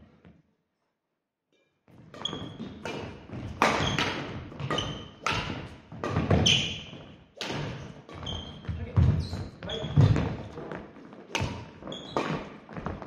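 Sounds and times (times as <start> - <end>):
racket hitting shuttlecock: 2.0 - 9.2, 11.2 - 13.0
shoe squeaks: 2.1 - 3.0, 3.8 - 5.2, 6.2 - 7.2, 8.1 - 10.2, 11.4 - 12.5.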